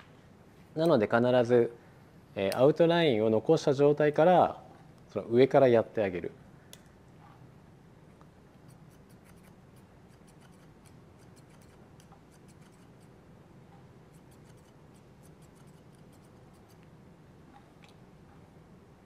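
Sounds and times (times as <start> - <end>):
scissors snipping hair: 8.6 - 13.1, 14.1 - 16.9.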